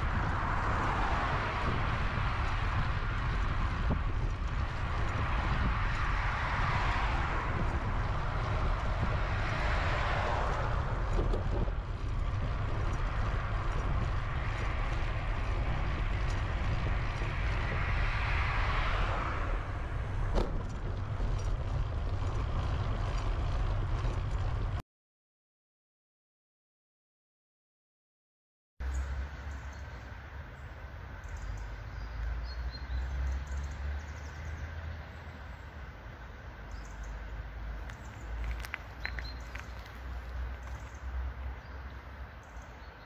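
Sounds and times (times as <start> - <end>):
cars passing: 0.0 - 24.8, 28.8 - 43.0
steady low rumble: 0.0 - 24.8.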